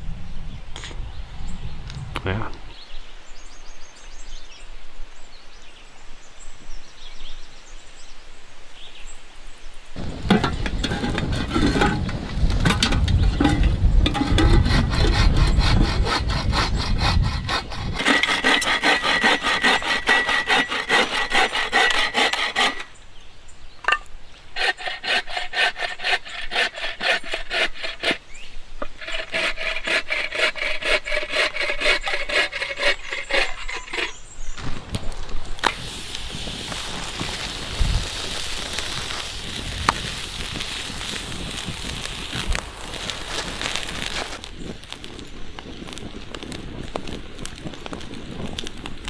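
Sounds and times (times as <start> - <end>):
bow saw cutting logs: 10.0 - 23.0, 23.9 - 34.5, 35.6 - 44.5.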